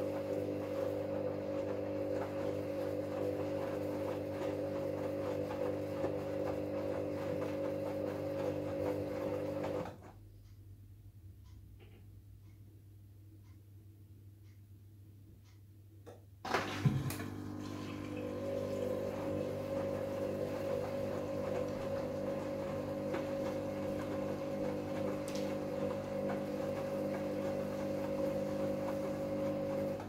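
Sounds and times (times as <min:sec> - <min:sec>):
washing machine humming: 0:00.0 - 0:10.4, 0:16.4 - 0:30.0.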